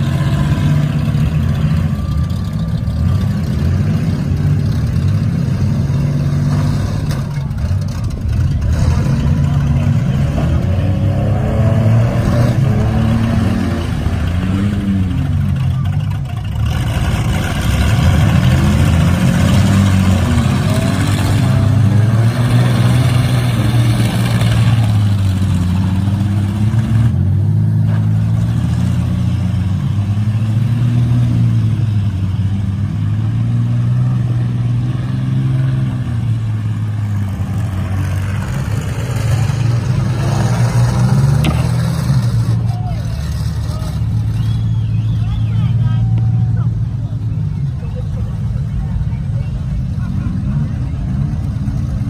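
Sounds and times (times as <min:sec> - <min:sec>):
minivan engines revving: 0:00.0 - 0:52.0.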